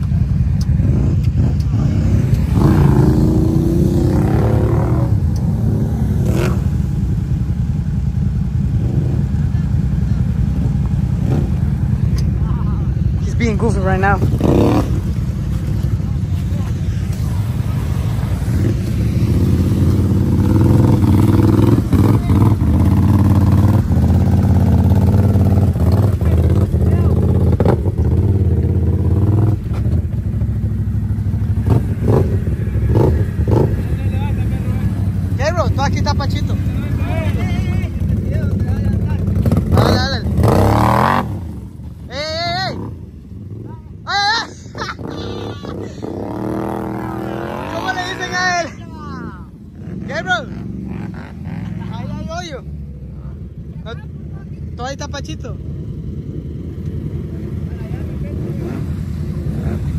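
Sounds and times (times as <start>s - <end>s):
off-road engines rumbling: 0.0s - 59.9s.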